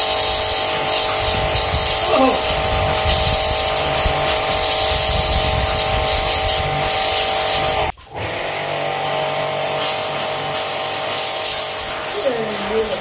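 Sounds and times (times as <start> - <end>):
water jet hissing on brick: 0.0 - 13.0
pressure washer motor whine: 6.6 - 11.4.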